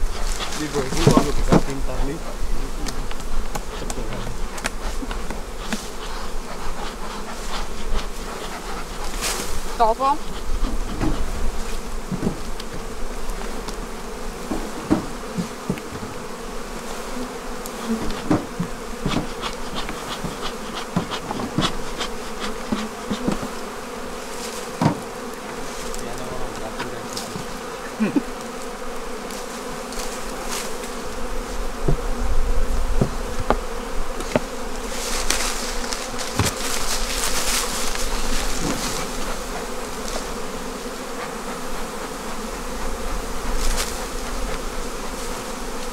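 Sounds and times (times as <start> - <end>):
honeybees buzzing: 0.0 - 45.9
knocks and taps on hive frames: 0.2 - 1.8, 2.8 - 6.1, 10.7 - 11.3, 12.0 - 16.4, 17.6 - 23.8, 24.7 - 27.8, 31.8 - 32.2, 32.8 - 44.8.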